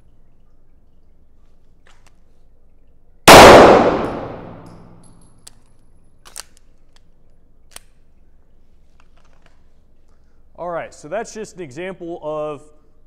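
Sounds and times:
handgun shot echoing indoors: 3.3s - 5.1s.

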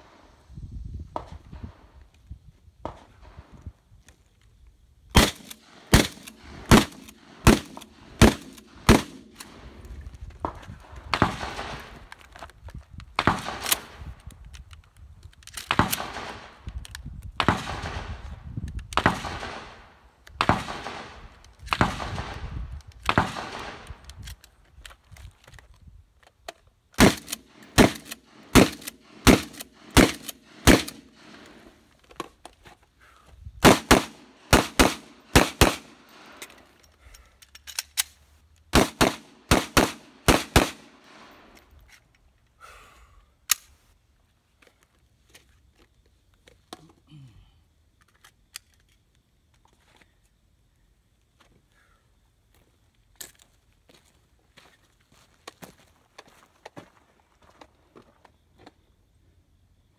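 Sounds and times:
gunshots echoing: 5.2s - 9.7s, 11.1s - 11.9s, 19.0s - 22.4s, 23.1s - 24.0s, 27.0s - 31.6s, 33.6s - 36.4s, 38.7s - 41.5s.

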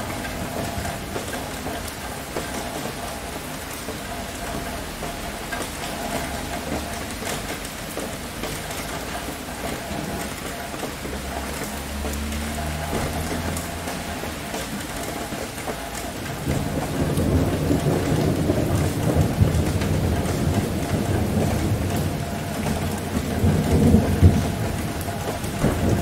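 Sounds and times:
heavy rain: 0.0s - 26.0s
low thunder rumble: 16.2s - 26.0s.

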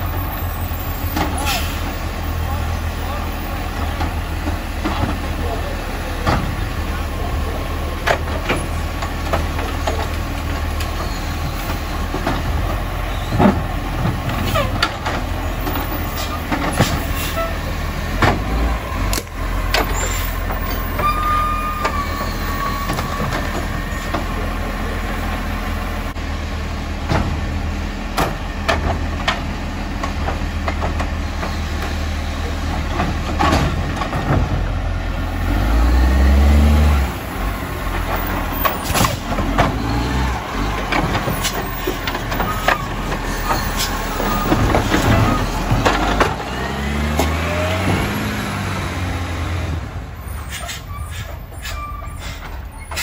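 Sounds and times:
garbage truck idling: 0.0s - 35.5s, 37.1s - 53.0s
short high squeal: 21.0s - 23.2s, 50.3s - 53.0s
bins knocking and clattering: 32.6s - 34.7s, 40.7s - 48.2s.

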